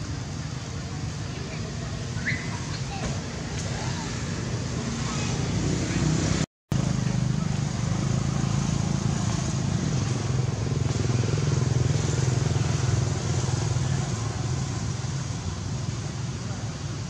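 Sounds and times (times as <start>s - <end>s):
constant background hiss: 0.0s - 17.0s.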